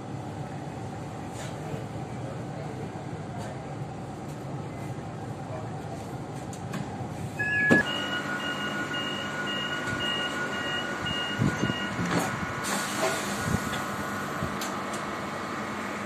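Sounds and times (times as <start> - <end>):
train equipment whine and hum: 0.0 - 16.0
short high door warning beeps: 7.4 - 12.2.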